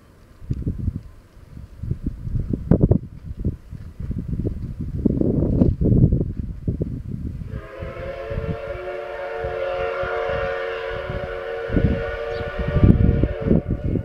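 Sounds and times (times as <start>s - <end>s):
wind rumble on microphone: 0.2s - 14.0s
steam locomotive whistle: 7.5s - 14.0s.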